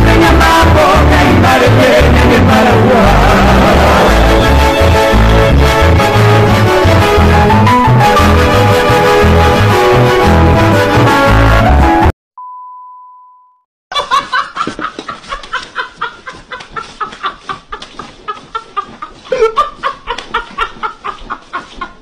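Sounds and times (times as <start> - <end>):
music: 0.0 - 12.1
person laughing hard: 13.9 - 22.0.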